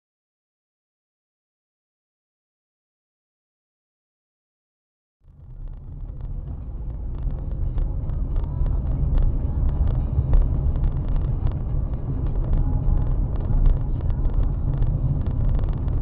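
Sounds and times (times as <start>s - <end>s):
road and engine rumble: 5.2s - 16.0s.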